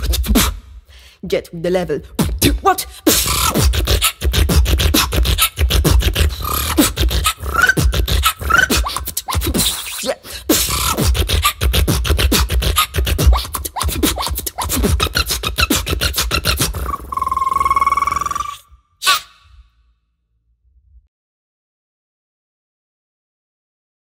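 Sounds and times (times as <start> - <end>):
woman beatboxing: 0.0 - 19.3
rising vocal glides: 3.0 - 18.8.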